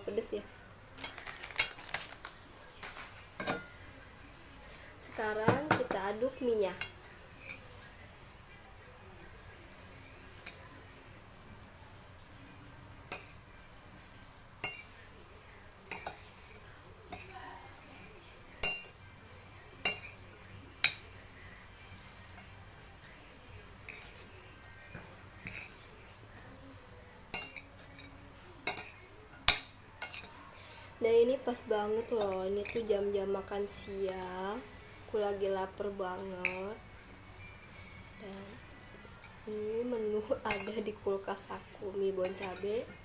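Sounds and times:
utensil clinking against dish: 3.4s - 3.8s, 18.6s - 19.0s, 19.8s - 20.2s, 24.9s - 25.8s, 27.3s - 30.4s, 40.4s - 40.9s, 42.2s - 42.8s.

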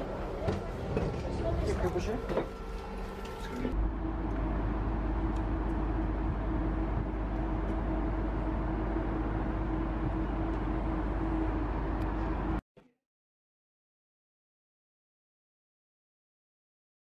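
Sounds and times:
ship machinery droning: 0.0s - 12.6s.

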